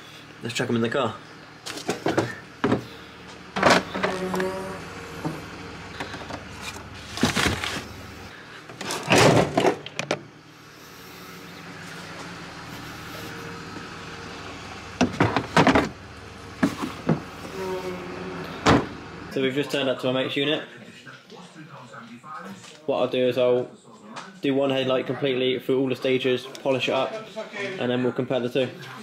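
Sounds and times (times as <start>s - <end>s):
car boot lid clunks and knocks: 15.0s - 15.9s.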